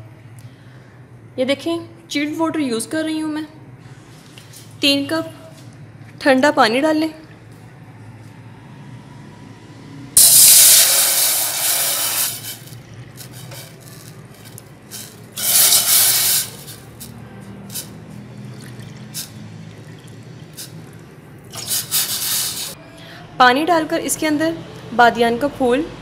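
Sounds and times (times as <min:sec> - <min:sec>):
water pouring into saucepan: 0:17.7 - 0:22.8
small clicks and drips: 0:18.2 - 0:21.6.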